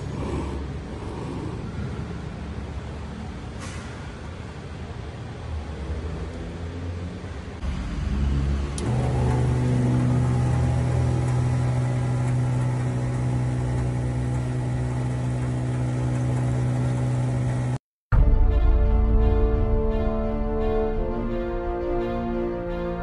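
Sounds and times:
electric water pump humming: 0:07.6 - 0:17.8
click: 0:08.8 - 0:09.1.

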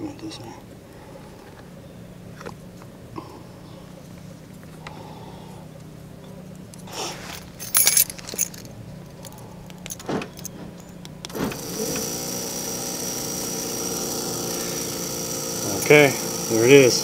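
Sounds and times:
cooling fan buzzing whine: 0:00.0 - 0:17.0
metallic rattles and clicks: 0:06.7 - 0:11.4.

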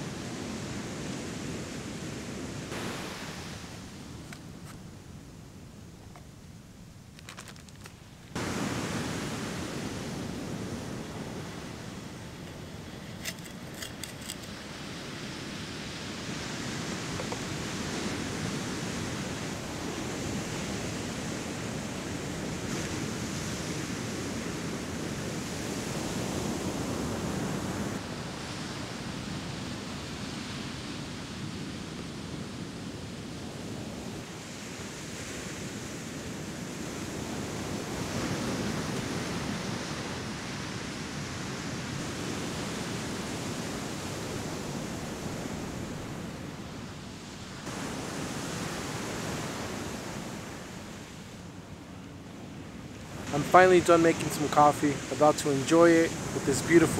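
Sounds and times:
ocean surf breaking: 0:00.0 - 0:06.2, 0:07.2 - 0:32.5, 0:33.3 - 0:56.9.

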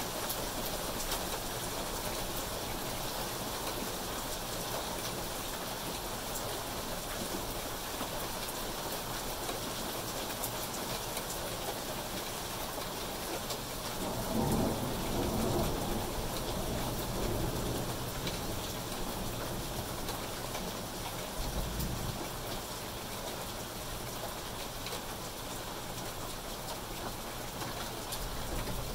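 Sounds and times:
rain pattering on foliage: 0:00.0 - 0:28.9
thunder rumbling: 0:14.0 - 0:18.7.

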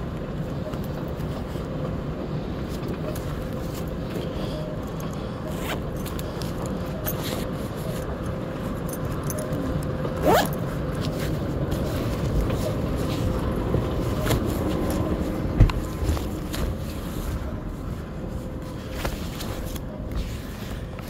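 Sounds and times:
moving walkway hum and rumble: 0:00.0 - 0:21.0
jacket zipper pulled: 0:10.2 - 0:11.2.

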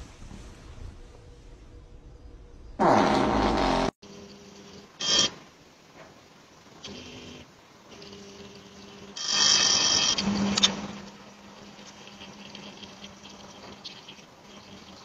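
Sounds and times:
steady low hum: 0:00.0 - 0:02.8.

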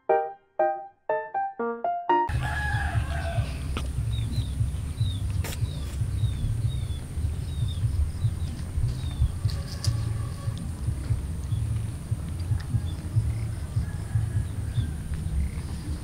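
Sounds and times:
rooster crowing: 0:02.3 - 0:03.7, 0:09.2 - 0:10.8, 0:12.6 - 0:15.3
wind rumble on microphone: 0:02.3 - 0:16.0
small bird chirping: 0:04.0 - 0:10.0.

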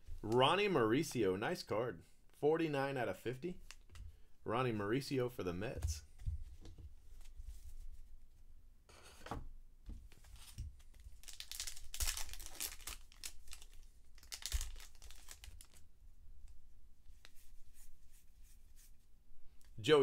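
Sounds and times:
foil wrapper tearing and crinkling: 0:10.4 - 0:15.8.

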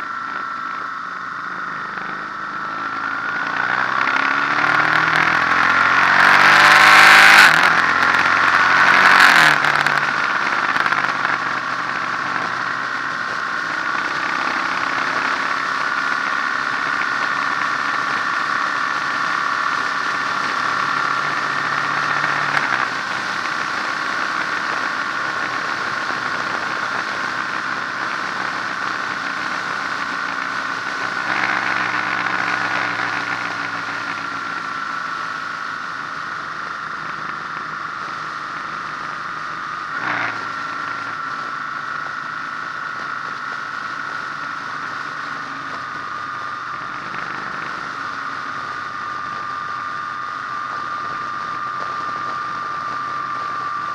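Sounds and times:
motorcycle engine revving: 0:00.0 - 0:53.9.

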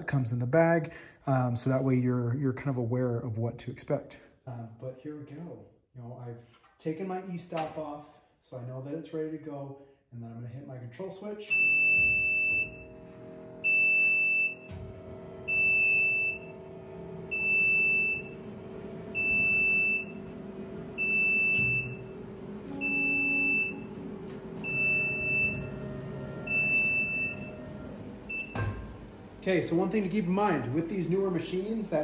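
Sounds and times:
high alarm beeps: 0:11.5 - 0:12.8, 0:13.6 - 0:14.7, 0:15.5 - 0:16.5, 0:17.3 - 0:18.4, 0:19.1 - 0:20.3, 0:21.0 - 0:24.0, 0:24.6 - 0:27.7, 0:28.3 - 0:28.8
machine hum: 0:11.5 - 0:32.0.

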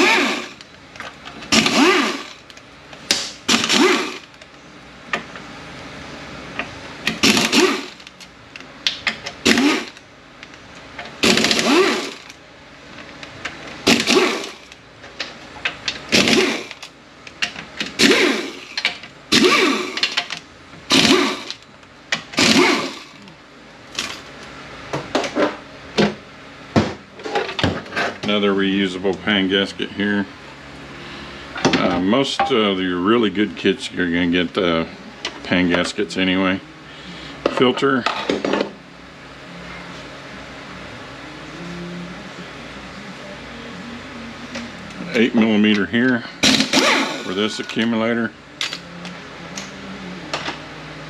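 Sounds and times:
cordless power tool whirring: 0:00.0 - 0:00.6, 0:01.4 - 0:02.5, 0:03.5 - 0:04.4, 0:07.1 - 0:08.1, 0:09.4 - 0:10.0, 0:11.2 - 0:12.4, 0:13.9 - 0:14.8, 0:16.1 - 0:16.9, 0:18.0 - 0:20.2, 0:20.9 - 0:21.6, 0:22.4 - 0:23.2, 0:46.5 - 0:47.5.

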